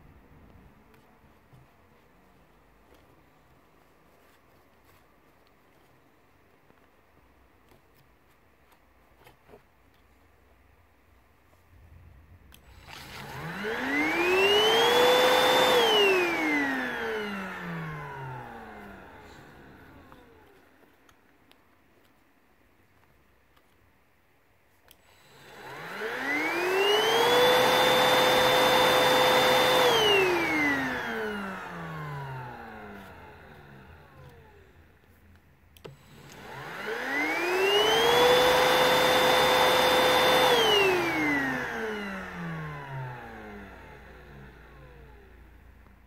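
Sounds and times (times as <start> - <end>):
stick vacuum motor whining: 12.5 - 20.9, 24.9 - 35.2, 35.8 - 46.0.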